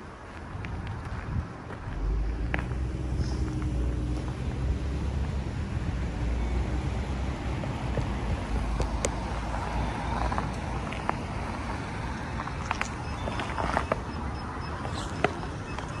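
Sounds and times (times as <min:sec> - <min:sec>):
passing cars humming: 0:01.2 - 0:16.0.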